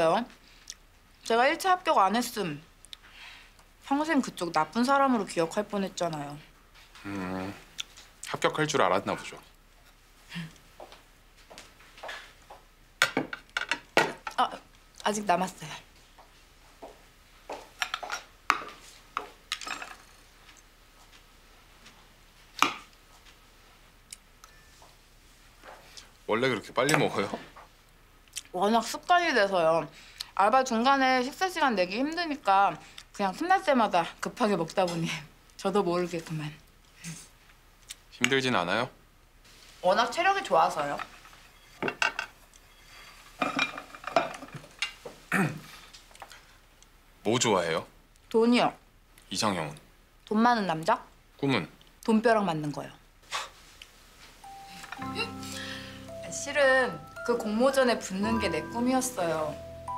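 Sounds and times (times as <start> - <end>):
cutlery clinking on a plate: 43.4 - 45.0.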